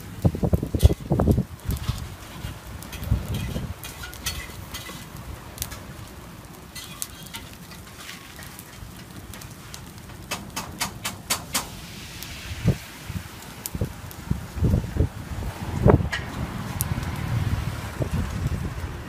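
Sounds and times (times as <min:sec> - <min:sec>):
wind rumble on microphone: 0:00.0 - 0:06.6, 0:08.5 - 0:19.0
metal tongs clicking and scraping: 0:02.4 - 0:05.8, 0:06.8 - 0:09.5.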